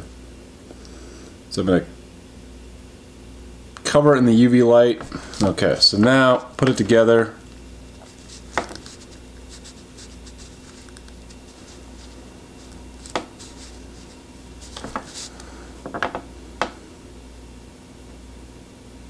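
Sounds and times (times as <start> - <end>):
steady low hum: 0.0 - 19.0
light taps and rubbing: 7.9 - 16.8.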